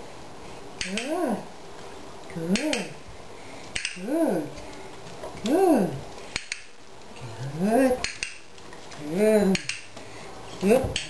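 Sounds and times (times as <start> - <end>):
person calling out: 0.8 - 1.5, 2.3 - 3.0, 4.0 - 4.6, 5.4 - 6.0, 7.2 - 8.0, 9.0 - 9.7
sharp clicks: 3.8 - 4.0, 6.3 - 6.7, 9.5 - 9.9.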